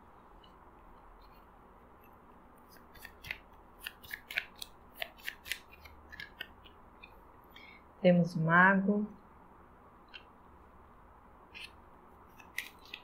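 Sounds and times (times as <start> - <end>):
cards being shuffled by hand: 2.6 - 7.2, 11.5 - 13.0
crisp card snaps: 2.7 - 6.6, 11.6 - 13.0.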